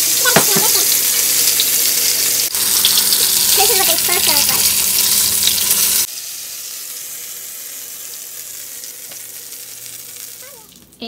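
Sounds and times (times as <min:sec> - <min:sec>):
bread sizzling in hot oil: 0:00.0 - 0:11.0.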